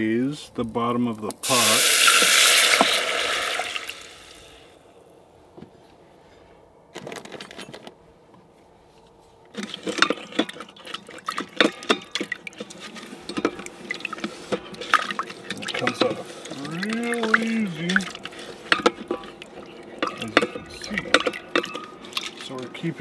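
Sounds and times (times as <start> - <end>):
broth sizzling in hot pot: 1.4 - 4.7
spatula scraping pot bottom: 9.6 - 23.0.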